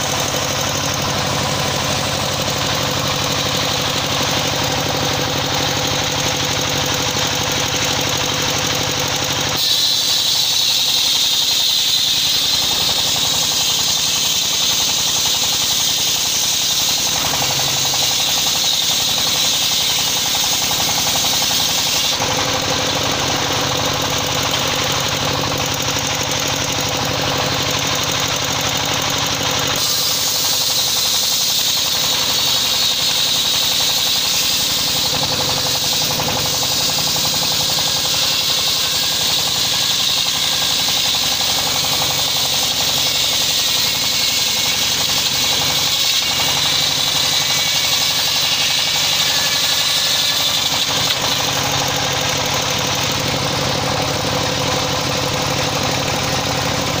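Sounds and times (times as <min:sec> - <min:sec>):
circular saw ripping log: 0:09.5 - 0:23.8, 0:29.5 - 0:53.5.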